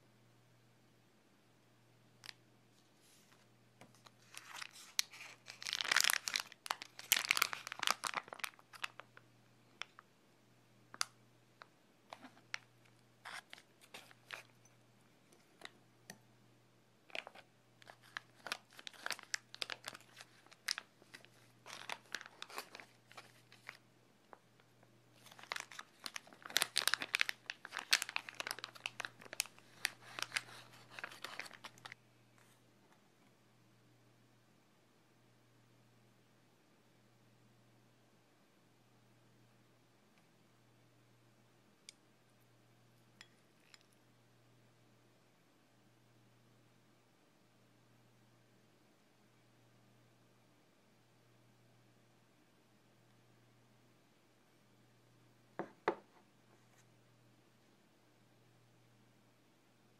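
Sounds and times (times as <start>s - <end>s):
plastic pouch crinkling: 3.9s - 9.2s, 12.1s - 14.7s, 17.1s - 23.8s, 25.2s - 32.0s.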